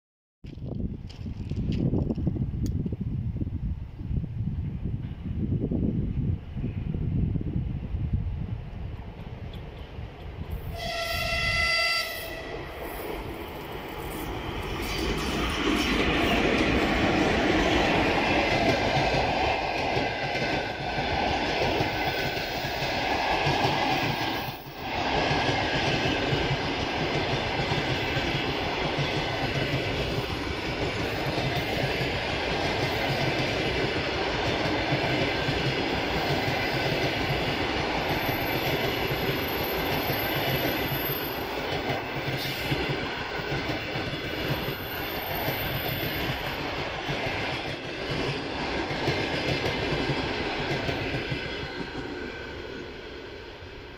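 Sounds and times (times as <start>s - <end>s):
train rumbling past: 0.6s - 53.9s
locomotive horn blast: 10.7s - 12.8s.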